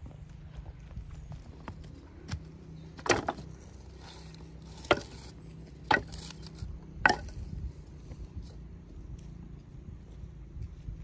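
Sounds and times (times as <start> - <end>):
firewood knocking on pile: 3.0 - 3.5, 4.7 - 7.5.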